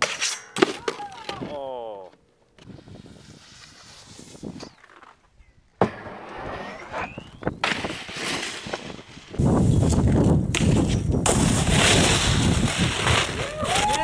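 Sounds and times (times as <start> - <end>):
snowboard scraping a steel rail: 2.7 - 5.2, 5.8 - 14.0.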